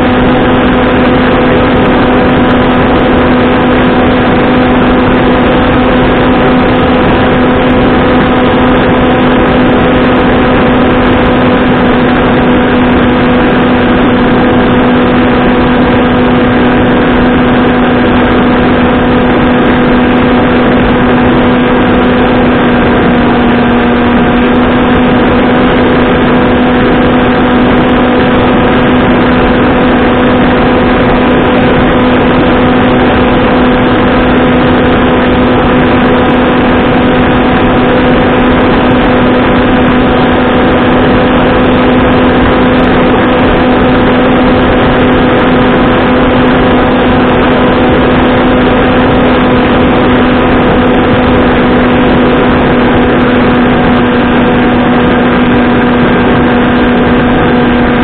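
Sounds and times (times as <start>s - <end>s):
electric motor propeller drone: 0.0s - 58.0s
rushing air noise: 0.0s - 58.0s.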